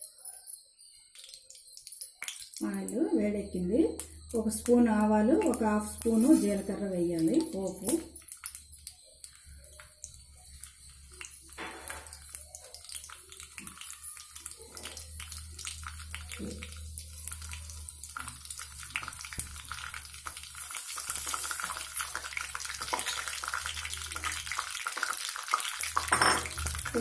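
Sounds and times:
seeds sizzling and popping in oil: 0.0s - 27.0s.

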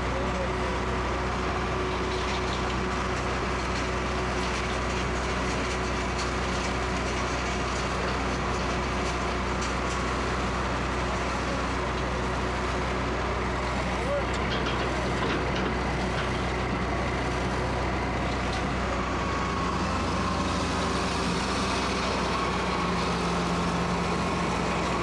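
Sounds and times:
excavator diesel engine: 0.0s - 25.0s
wash plant machinery running: 0.0s - 25.0s
gravel and rock rattling: 14.2s - 18.8s.

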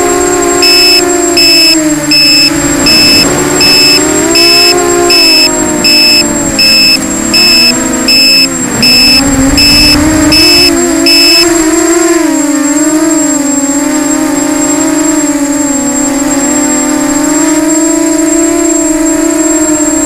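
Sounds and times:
quadcopter motors whining: 0.0s - 20.0s
loud electronic beeper: 0.6s - 12.0s.

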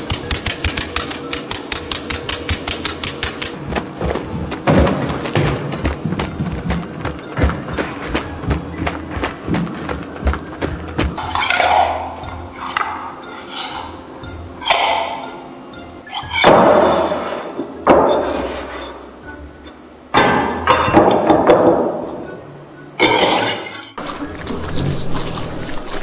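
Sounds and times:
metal bowls clanking: 14.6s - 15.4s.

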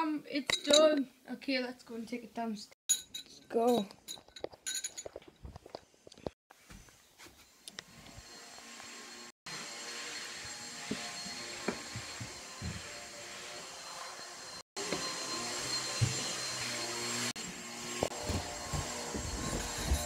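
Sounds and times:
footsteps on carpeted stairs: 10.4s - 13.1s, 14.8s - 20.0s.

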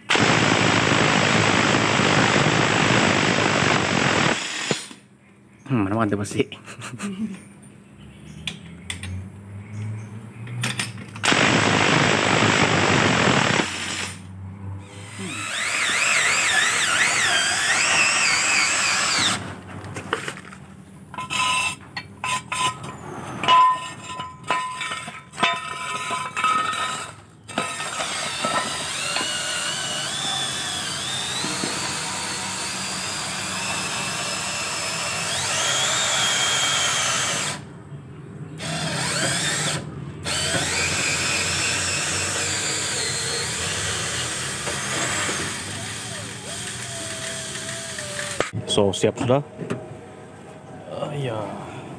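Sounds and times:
scissor jack being wound down: 45.6s - 48.5s.

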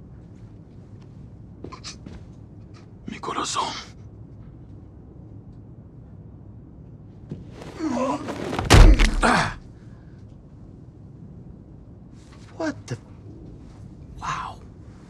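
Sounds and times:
body falling onto seat: 7.3s - 9.6s.

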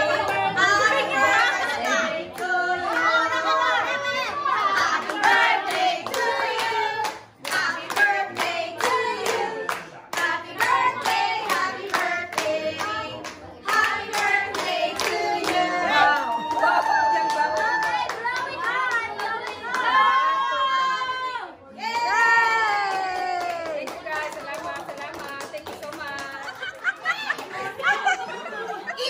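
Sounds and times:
people singing: 0.0s - 16.8s
hands clapping in rhythm: 4.8s - 20.0s, 21.9s - 27.7s.

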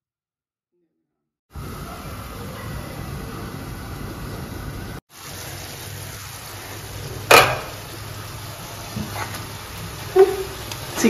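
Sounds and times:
chicken sizzling in a pan: 5.1s - 11.0s
metallic clank on pan: 7.3s - 7.8s.

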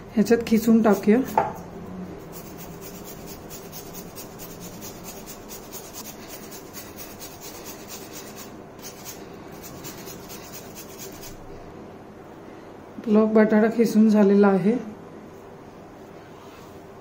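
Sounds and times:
potato grated on metal grater: 0.5s - 11.5s.

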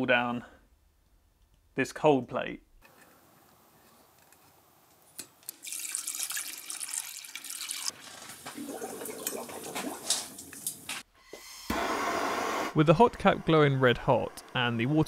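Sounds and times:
tap water running: 5.5s - 11.0s.

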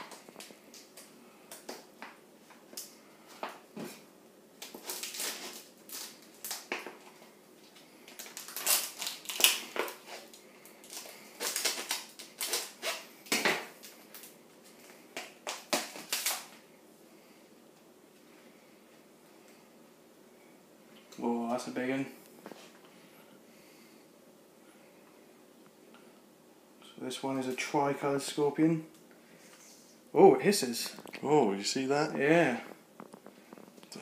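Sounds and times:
packaging rustling and crinkling: 4.6s - 16.6s.

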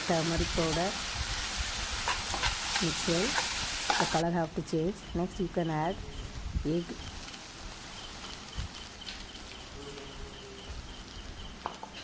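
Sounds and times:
eggs sizzling in oil: 0.0s - 12.0s.

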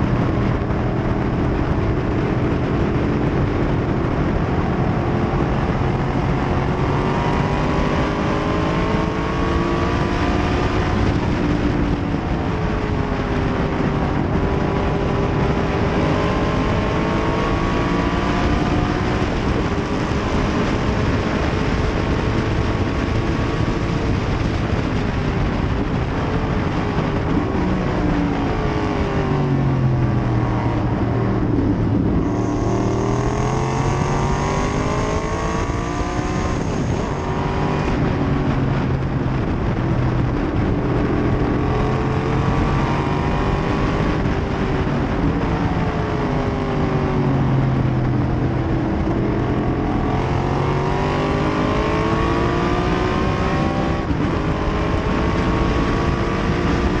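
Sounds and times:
heavy wind noise: 0.0s - 57.0s
race car engine revving: 0.0s - 57.0s.

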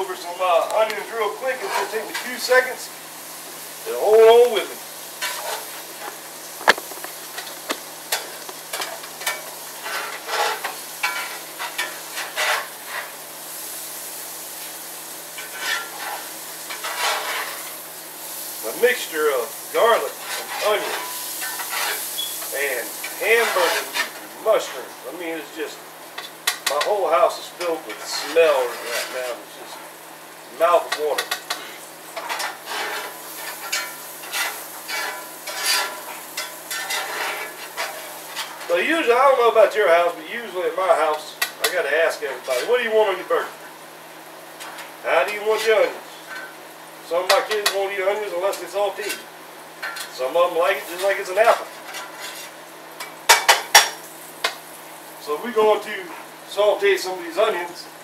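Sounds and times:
mushrooms sizzling in a pan: 0.0s - 58.0s
spoon scraping and stirring: 6.8s - 13.2s, 15.4s - 17.7s, 20.2s - 22.4s, 23.0s - 24.2s, 31.2s - 38.7s, 51.8s - 53.1s
spoon scraping and clinking on pan: 32.2s - 38.7s.

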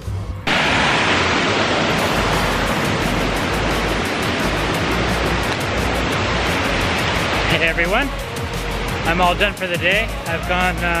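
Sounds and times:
low rumble: 0.4s - 9.2s
loud steady rushing noise: 0.4s - 11.0s.

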